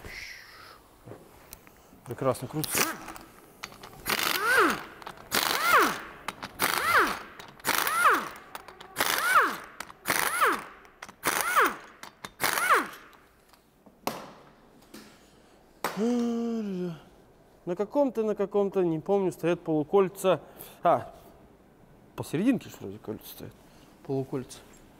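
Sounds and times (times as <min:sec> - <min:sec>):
pneumatic impact wrench: 0:02.7 - 0:13.2
handling sounds: 0:08.3 - 0:09.0.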